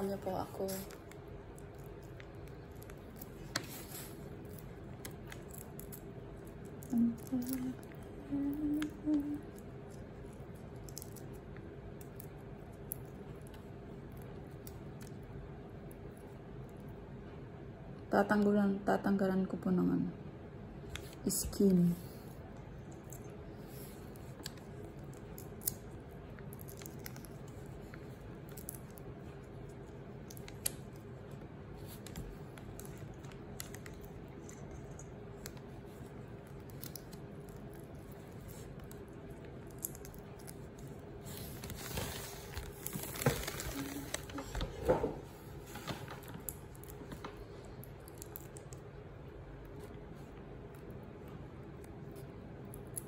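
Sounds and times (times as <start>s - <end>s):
steady low hum: 0.0s - 53.0s
shrimp shells clicking and crackling: 24.2s - 31.2s.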